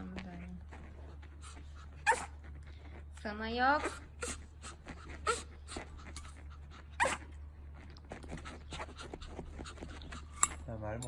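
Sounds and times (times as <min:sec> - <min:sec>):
dog panting: 0:00.0 - 0:10.9
dog yipping: 0:01.8 - 0:02.6, 0:03.8 - 0:07.4.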